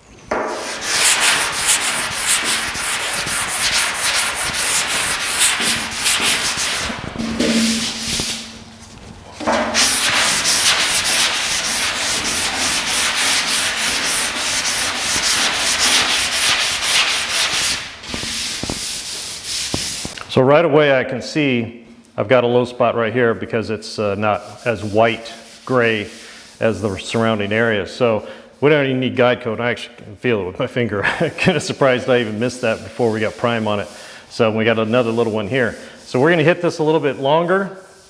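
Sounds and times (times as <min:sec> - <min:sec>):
sandpaper rubbing on metal: 0:00.5 - 0:08.6, 0:09.7 - 0:20.2.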